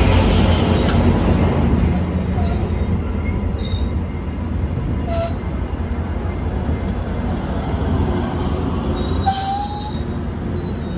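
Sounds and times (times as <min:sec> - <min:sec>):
train rolling past rumbling: 0:00.0 - 0:10.9
train wheel squeals: 0:02.4 - 0:04.3, 0:05.0 - 0:05.6, 0:08.3 - 0:10.9.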